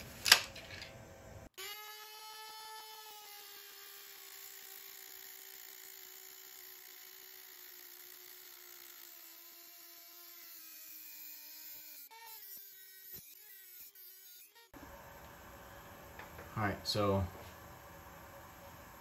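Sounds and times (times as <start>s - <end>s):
rotary tool cutting metal: 1.6s - 14.8s.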